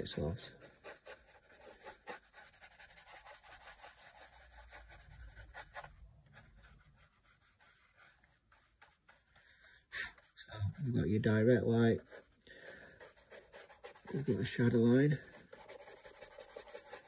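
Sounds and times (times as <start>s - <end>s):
brush scratching on paper: 0.0s - 17.0s.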